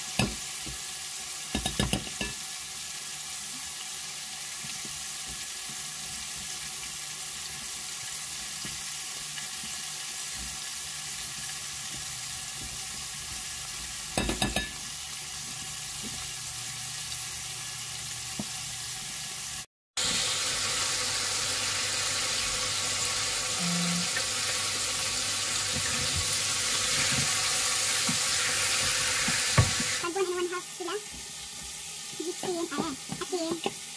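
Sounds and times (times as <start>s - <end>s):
chicken sizzling in hot oil: 0.0s - 33.9s.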